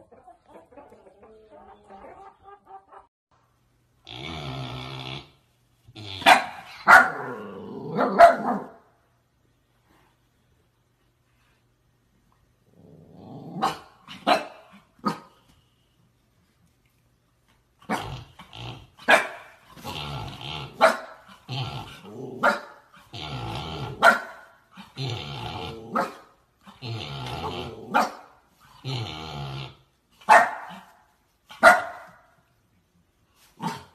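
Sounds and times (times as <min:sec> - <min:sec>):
puppy play-growling: 0:04.0 - 0:08.8, 0:12.6 - 0:15.6, 0:17.7 - 0:31.6
puppy barking: 0:06.2 - 0:08.8, 0:13.6 - 0:15.4, 0:19.0 - 0:19.6, 0:20.8 - 0:21.2, 0:22.4 - 0:22.8, 0:24.0 - 0:24.5, 0:27.9 - 0:28.3, 0:30.2 - 0:32.4.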